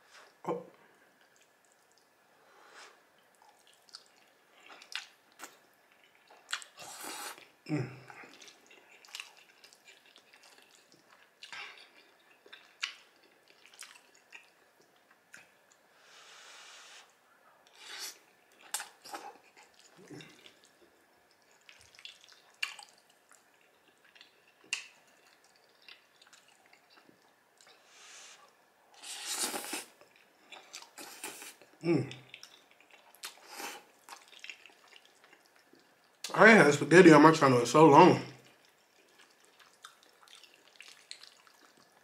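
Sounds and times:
wet squishy chewing: 3.3s - 7.5s, 8.1s - 15.8s, 17.7s - 27.8s, 29.2s - 36.3s, 38.4s - 42.0s
slurping noodles: 6.6s - 7.5s, 27.8s - 30.0s.

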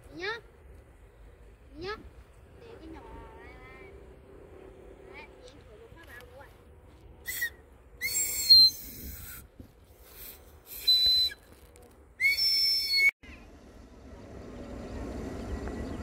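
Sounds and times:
shrill whistle-like calls: 7.2s - 9.4s, 10.7s - 11.5s, 12.2s - 13.2s
jet airliner rumble: 13.2s - 16.0s.

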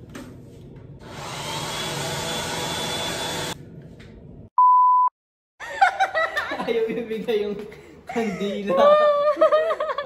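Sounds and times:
hair dryer blowing: 1.0s - 3.6s.

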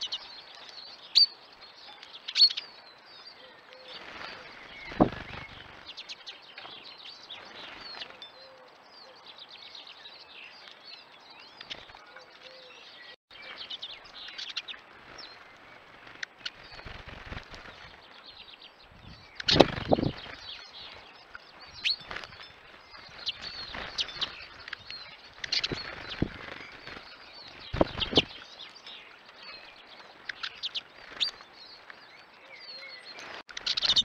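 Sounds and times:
finches twittering: 4.0s - 6.2s, 19.1s - 31.8s, 32.8s - 34.0s
birds thumping at feeder: 4.8s - 5.6s, 19.4s - 20.4s, 27.7s - 28.4s.

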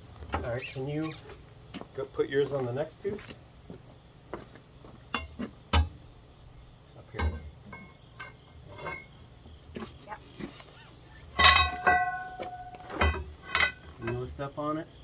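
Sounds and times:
high insect drone: 0.0s - 15.0s
steel tools knocking on metal: 7.2s - 9.2s, 11.4s - 14.3s
loud ringing metallic clang: 11.4s - 14.3s.

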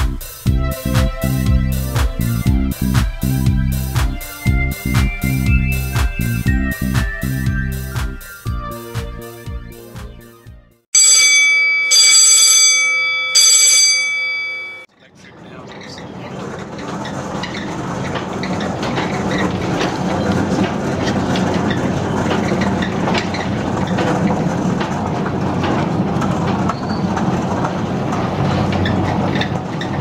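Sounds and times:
rail wagon wheels clattering: 15.2s - 30.0s.

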